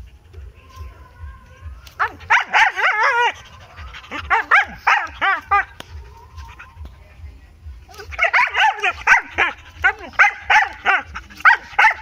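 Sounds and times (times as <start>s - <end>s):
dog barking angrily: 2.0s - 5.7s, 8.1s - 12.0s.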